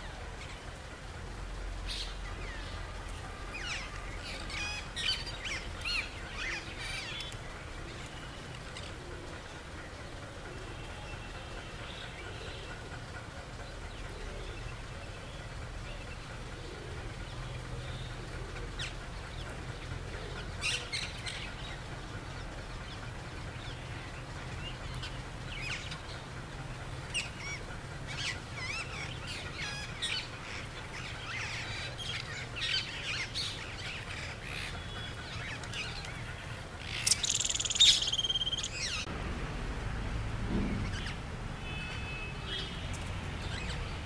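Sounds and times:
parakeets chirping and squawking: 30.9 - 39.1.

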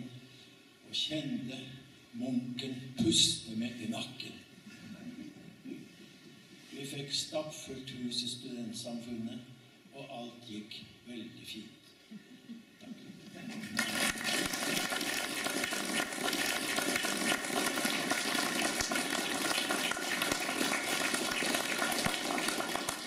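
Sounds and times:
audience applauding: 13.5 - 23.0.

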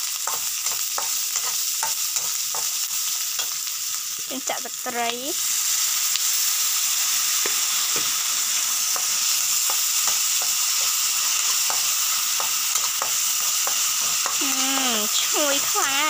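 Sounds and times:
food sizzling in a wok: 0.0 - 16.0
metal spatula scraping a pan: 0.2 - 3.6.

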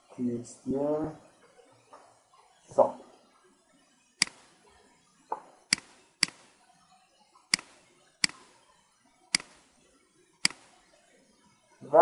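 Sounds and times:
computer mouse button clicking: 4.2 - 4.4, 5.7 - 6.5, 7.6 - 8.5, 9.4 - 9.6, 10.4 - 10.7.

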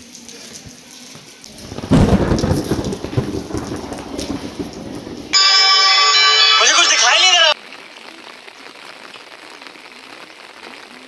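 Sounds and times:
heavy rain: 0.0 - 11.0
thunder clap and rumble: 1.5 - 6.2
loud held musical chord: 5.4 - 7.5.

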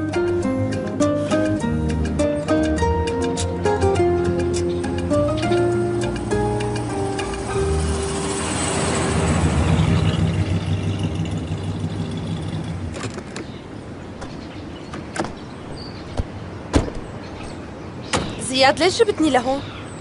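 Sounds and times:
car driving up and stopping: 5.0 - 13.6
car door clicks and knocks: 14.2 - 15.4, 16.1 - 18.4.

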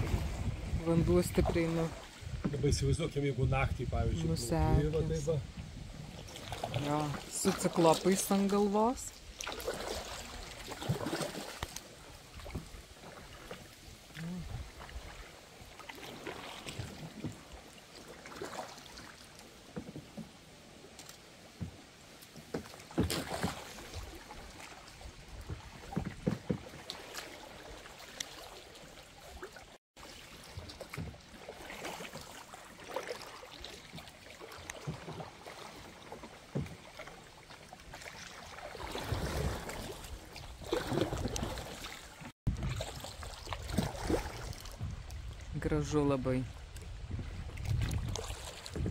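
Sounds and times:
paddle knocking on hull: 0.0 - 2.8, 14.8 - 17.6, 19.7 - 20.3, 22.4 - 28.0, 30.0 - 41.9
paddle splashing in water: 0.0 - 48.9.

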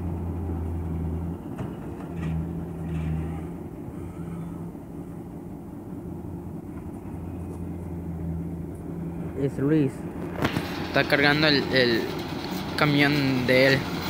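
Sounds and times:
diesel engines droning: 0.0 - 14.0.

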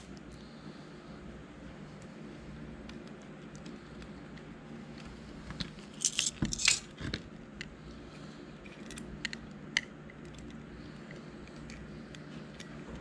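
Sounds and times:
light ticks of small parts: 2.8 - 6.8, 8.6 - 13.0.

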